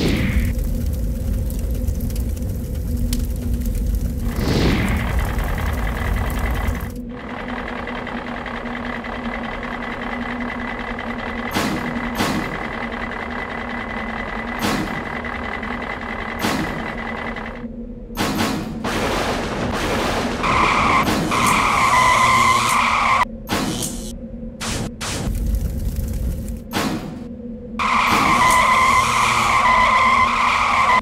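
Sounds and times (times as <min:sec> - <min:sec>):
cartoon tractor engine running: 0:05.0 - 0:17.6.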